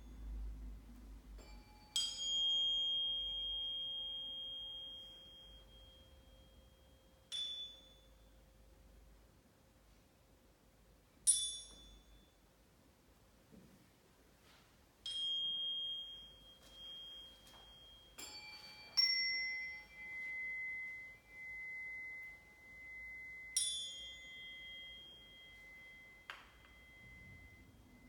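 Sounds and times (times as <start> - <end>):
ringing metal notes: 15.0 - 28.0.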